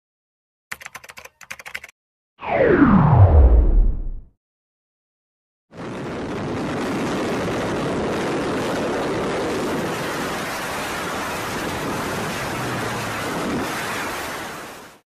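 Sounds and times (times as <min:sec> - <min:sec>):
wind rushing: 0:05.8 - 0:14.7.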